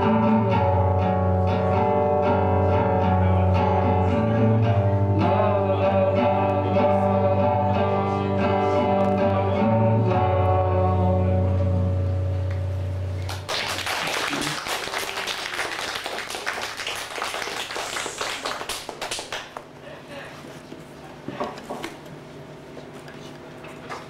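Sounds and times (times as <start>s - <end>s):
person singing: 0.0s - 12.0s
audience applause: 13.2s - 19.6s.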